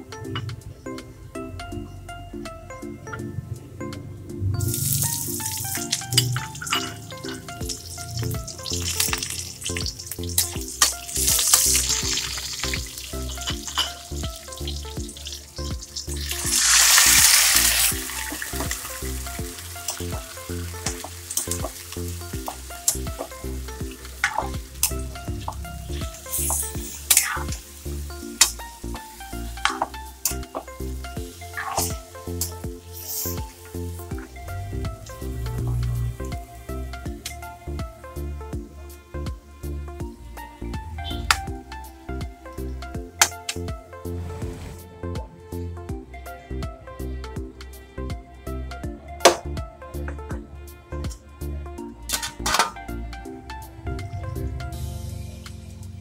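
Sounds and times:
background music: 0.0s - 56.0s
food sizzling in oil: 4.7s - 33.7s.

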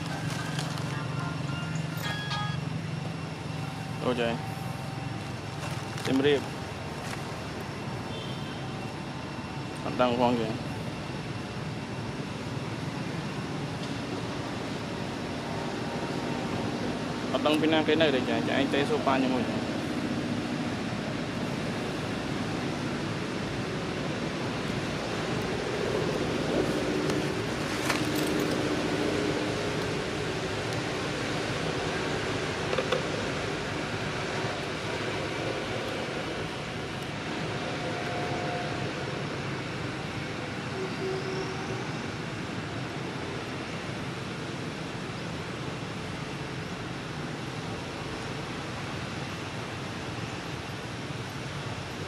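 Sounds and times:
steady rushing noise: 9.1s - 40.7s.

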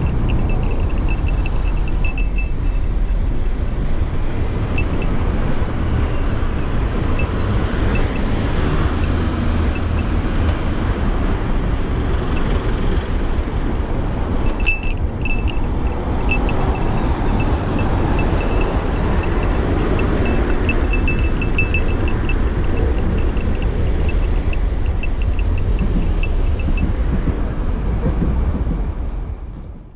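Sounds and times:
road traffic: 0.0s - 29.9s
wind buffeting microphone: 0.0s - 29.9s
light metallic ticks: 14.4s - 27.0s.

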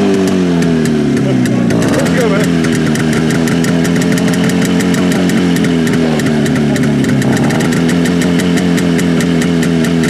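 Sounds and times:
motorcycle engine idling: 0.0s - 10.0s.

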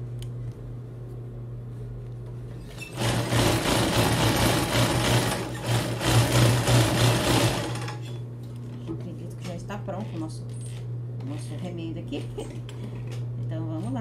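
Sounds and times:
steady motor hum: 0.0s - 14.0s
sewing machine stitching: 2.7s - 8.1s.

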